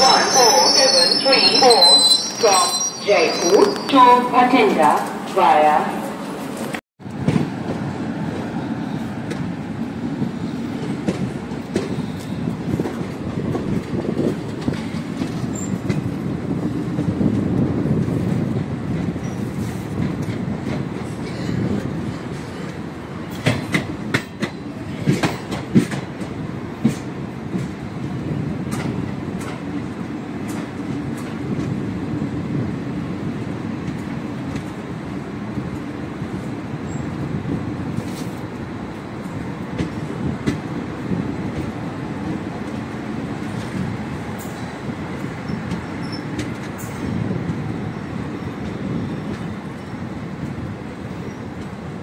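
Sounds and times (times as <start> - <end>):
train wheels rumbling on track: 6.1 - 52.0.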